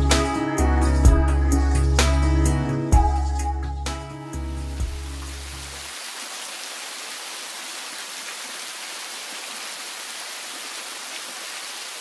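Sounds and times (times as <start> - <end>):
music: 0.0 - 5.8
rushing falling water: 4.8 - 12.0.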